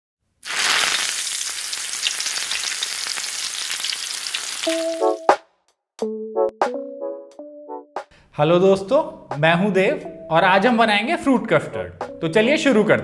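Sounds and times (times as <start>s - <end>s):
frying sizzle: 0.4s - 5.3s.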